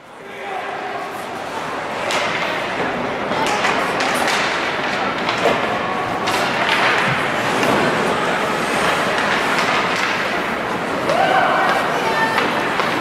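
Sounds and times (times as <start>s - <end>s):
crowd noise: 0.0s - 13.0s
ice skates scraping: 1.0s - 13.0s
hockey sticks and puck knocking: 1.9s - 13.0s
people shouting: 11.0s - 13.0s.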